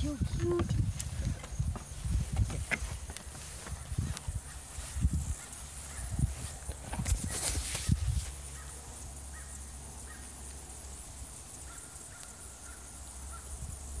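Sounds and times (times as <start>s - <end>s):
wind rumble on microphone: 0.0s - 8.6s, 13.3s - 14.0s
hooves knocking on wood: 0.2s - 4.3s.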